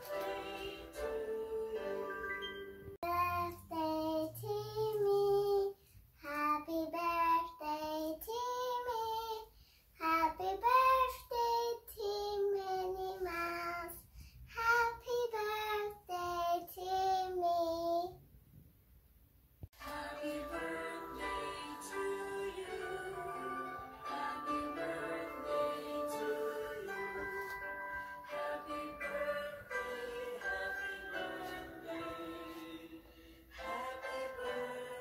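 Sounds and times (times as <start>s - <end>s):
instrumental music: 0.0s - 3.0s, 19.8s - 35.0s
child singing: 3.0s - 18.2s.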